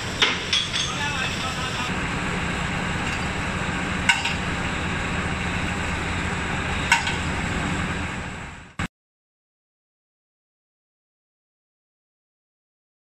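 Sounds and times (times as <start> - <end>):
machinery hum: 0.0 - 8.9
sharp metal clanks: 0.2 - 1.1.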